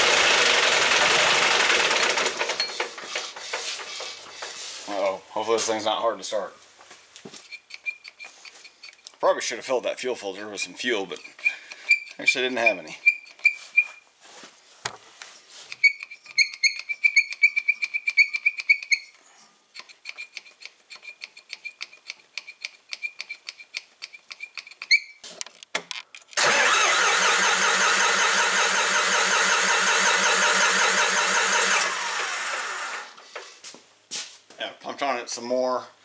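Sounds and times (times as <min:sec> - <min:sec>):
diesel engine cranking: 0:00.0 - 0:03.0, 0:26.4 - 0:33.2
squeaky hand pump clicks: 0:07.5 - 0:09.2, 0:11.1 - 0:12.4, 0:13.0 - 0:13.6, 0:15.7 - 0:19.1, 0:19.8 - 0:25.2.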